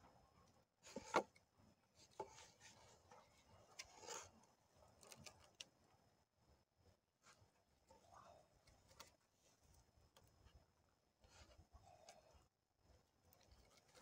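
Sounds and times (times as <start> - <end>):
cord rasping against bark: 2.0 - 5.5.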